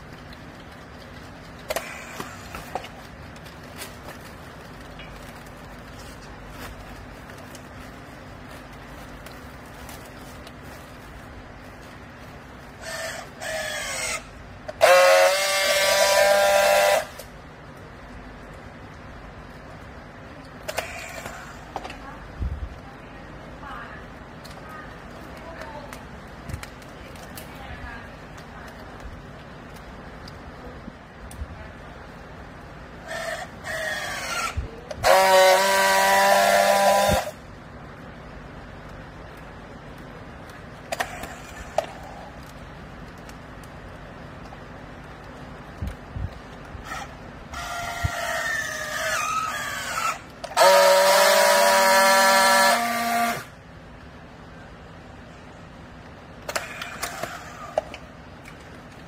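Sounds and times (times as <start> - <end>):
loud steady buzz: 1.5 - 17.7, 32.0 - 42.9, 43.6 - 59.0
strapping tool motor whirring: 12.8 - 17.3, 33.0 - 37.4, 46.8 - 53.5.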